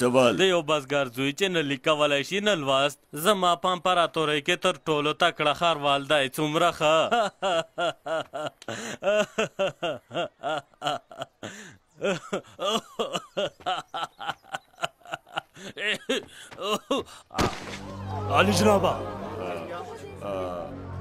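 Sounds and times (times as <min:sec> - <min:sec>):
man laughing: 0:06.8 - 0:17.4.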